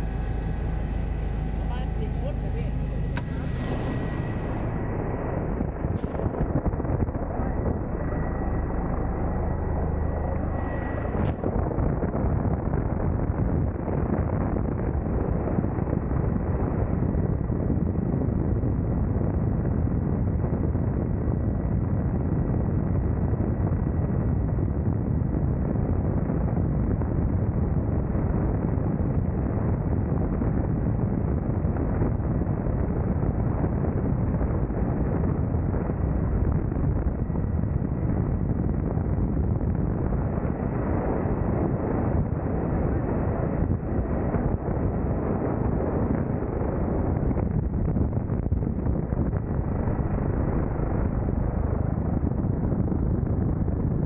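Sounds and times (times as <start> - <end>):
faint high whine: 0.0 - 17.5, 31.6 - 54.0
helicopter engine and rotor noise: 0.0 - 54.0
wind buffeting microphone: 0.0 - 54.0.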